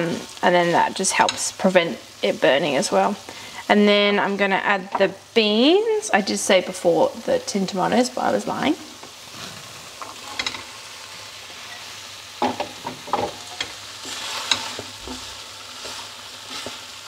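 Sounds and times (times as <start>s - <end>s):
food sizzling in a pan: 0.0s - 17.0s
wooden spoon scraping a pan: 9.0s - 10.8s, 11.5s - 17.0s.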